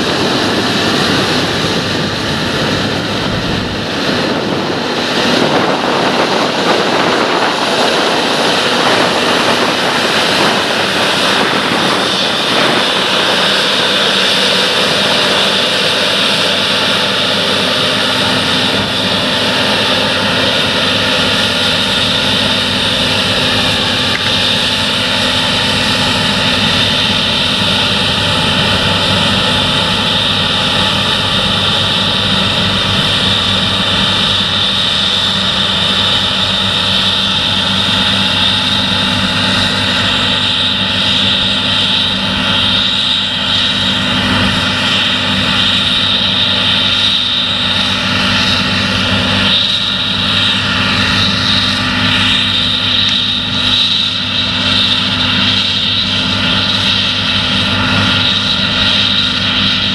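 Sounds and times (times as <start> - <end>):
high machinery whine: 0.0 - 59.9
machinery drone: 0.0 - 59.9.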